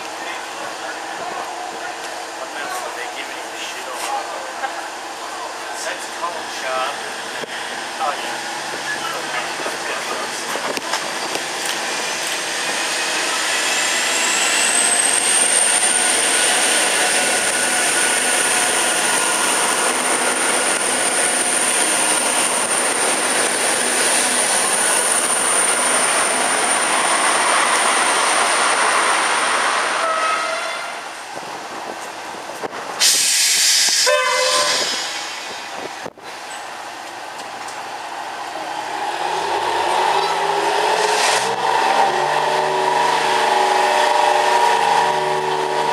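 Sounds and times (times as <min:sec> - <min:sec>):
rail motor engine revving: 0:00.0 - 0:36.0, 0:36.8 - 0:45.9
diesel railcar running past: 0:00.0 - 0:45.9
burst of hiss: 0:33.0 - 0:35.5.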